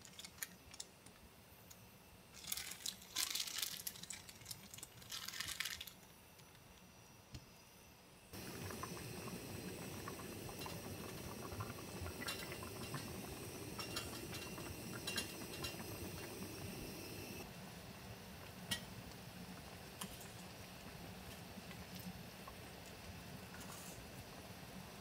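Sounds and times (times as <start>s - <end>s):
stew bubbling in a pot: 8.3s - 25.0s.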